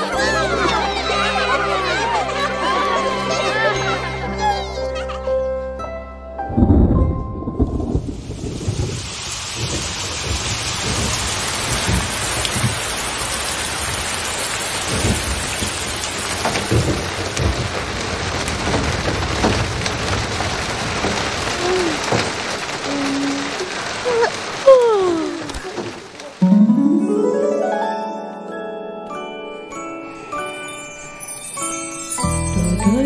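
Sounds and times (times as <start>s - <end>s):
heavy rain falling: 0.0s - 4.4s, 7.5s - 33.0s
low thunder rumbles: 6.5s - 12.7s
loud thunderclap: 6.6s - 12.9s, 16.5s - 22.9s.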